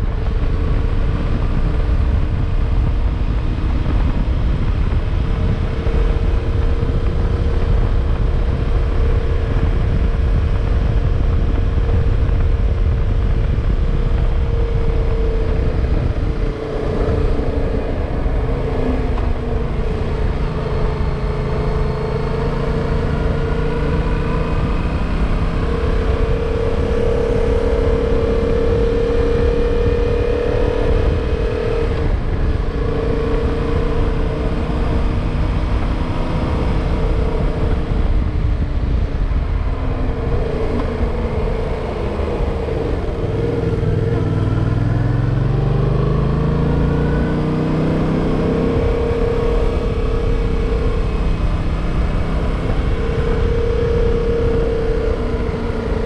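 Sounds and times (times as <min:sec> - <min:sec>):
motorcycle engine running: 0:00.0 - 0:56.0
wind noise on microphone: 0:00.0 - 0:56.0.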